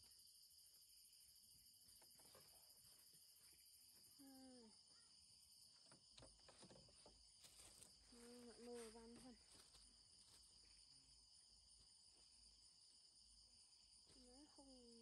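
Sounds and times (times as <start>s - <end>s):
crickets and insects trilling: 0.0s - 15.0s
low voice hum: 4.1s - 5.0s.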